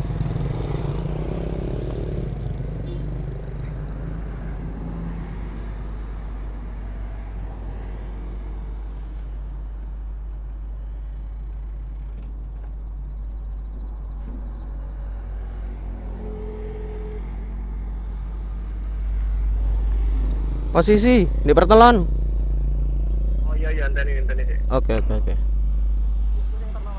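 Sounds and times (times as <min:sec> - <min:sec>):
motorcycle engine idling: 0:00.0 - 0:05.8, 0:09.7 - 0:16.1, 0:18.0 - 0:26.9.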